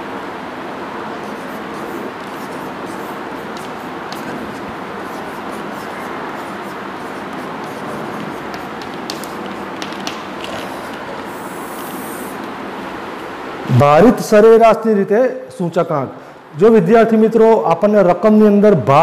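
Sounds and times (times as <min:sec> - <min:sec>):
steady background noise: 0:00.0 - 0:19.0
chalk scratching on blackboard: 0:01.2 - 0:12.4.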